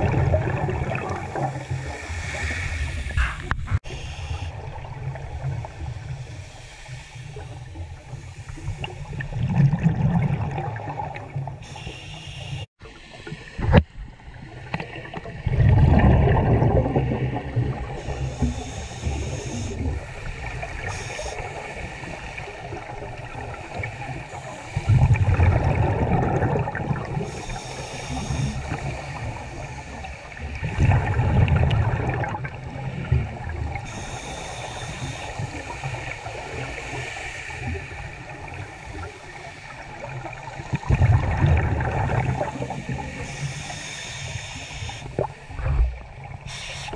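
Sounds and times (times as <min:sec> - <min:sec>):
bubbling exhalations: 0:00.0 - 0:03.8, 0:15.4 - 0:18.0, 0:24.8 - 0:27.3
hissing inhalations: 0:11.6 - 0:13.2, 0:18.0 - 0:21.9, 0:27.3 - 0:30.2, 0:33.8 - 0:38.0, 0:42.4 - 0:45.2, 0:46.4 - 0:46.9.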